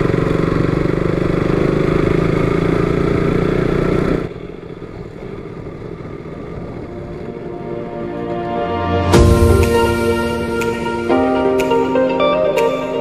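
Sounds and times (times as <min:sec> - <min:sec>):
motorcycle engine running: 0:00.0 - 0:13.0
ominous background music: 0:06.8 - 0:13.0.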